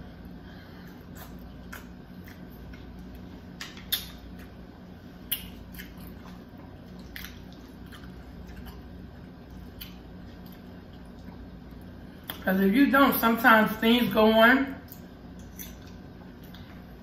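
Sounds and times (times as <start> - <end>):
chewing food: 0.6 - 12.4, 14.8 - 17.0
wet mouth clicks: 3.6 - 4.5, 5.3 - 6.1.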